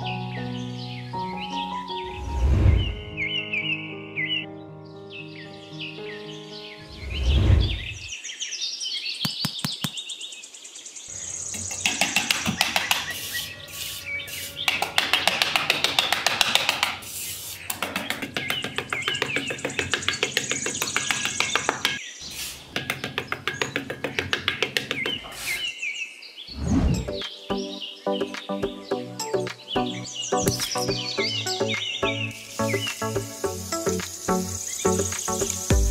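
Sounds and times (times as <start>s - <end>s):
birds chirping: 0.0s - 35.9s
trowel scraping in sand: 13.1s - 14.7s.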